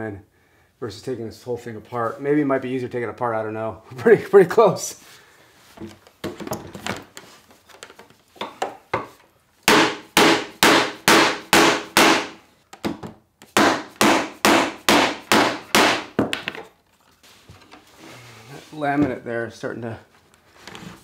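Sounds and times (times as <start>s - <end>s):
rubber mallet striking wood panels: 8.4s - 16.7s.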